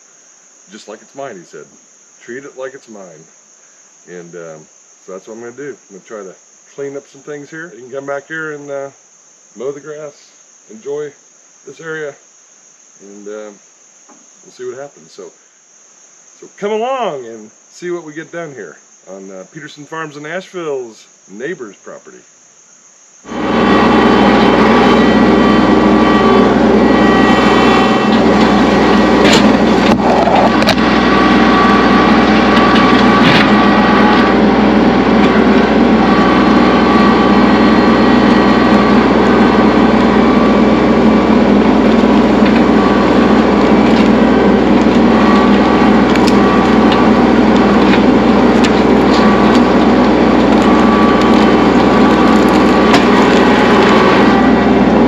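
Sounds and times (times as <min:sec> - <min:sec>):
tractor diesel engine running: 0:23.3 - 0:55.0
brush and wood breaking: 0:43.7 - 0:54.4.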